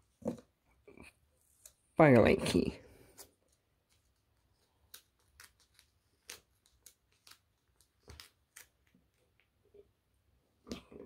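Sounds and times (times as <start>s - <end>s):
small objects clicking and rustling: 3.9s - 9.5s.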